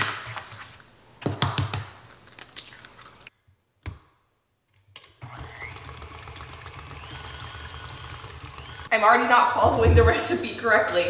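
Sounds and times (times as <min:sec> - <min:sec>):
stand mixer beating eggs: 0:05.2 - 0:08.9.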